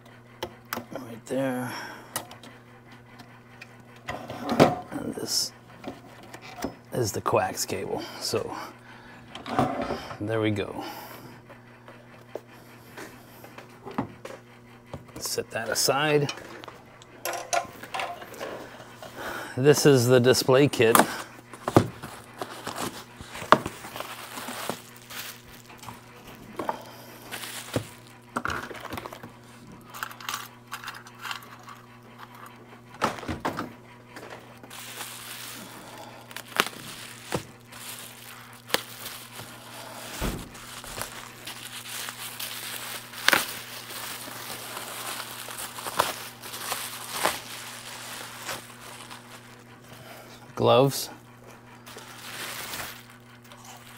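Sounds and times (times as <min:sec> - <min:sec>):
steady low hum: 0:00.0 - 0:53.9
plastic crinkling: 0:21.5 - 0:32.4, 0:34.6 - 0:49.8, 0:51.8 - 0:53.9.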